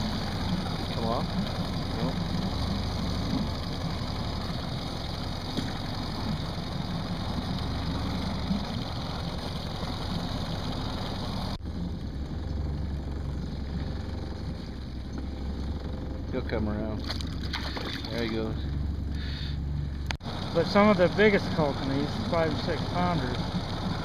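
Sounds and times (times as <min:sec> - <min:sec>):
boat motor humming: 0:00.0 - 0:24.0.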